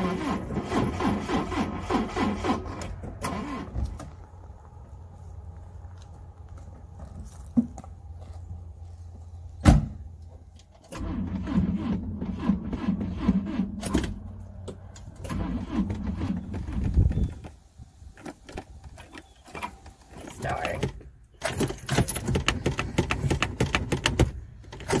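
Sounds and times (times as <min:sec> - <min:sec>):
starter cranking engine: 0:00.0 - 0:03.8, 0:10.9 - 0:14.2, 0:15.1 - 0:17.3.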